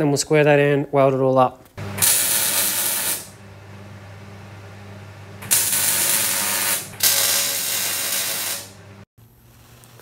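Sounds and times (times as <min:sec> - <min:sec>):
crackling hissing welding arc: 0:01.8 - 0:03.4, 0:05.5 - 0:10.0
low steady hum: 0:01.8 - 0:07.0.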